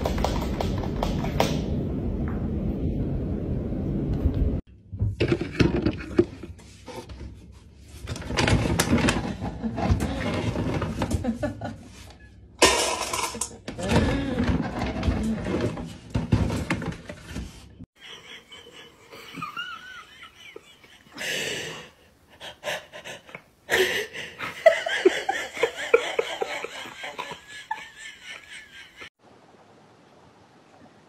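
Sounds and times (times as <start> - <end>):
person laughing breathily: 18.0 - 29.1.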